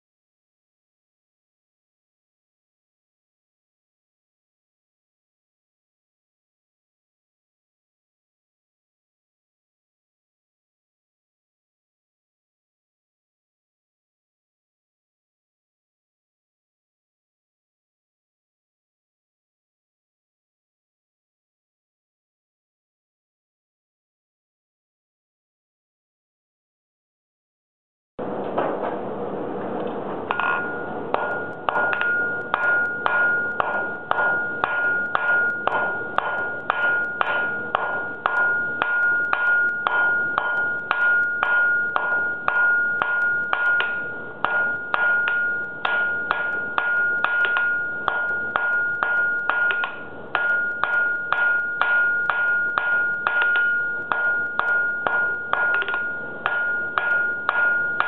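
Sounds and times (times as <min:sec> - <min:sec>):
anvil ringing: 0:30.3 - 0:58.0
hammer striking steel on anvil: 0:30.3 - 0:58.0.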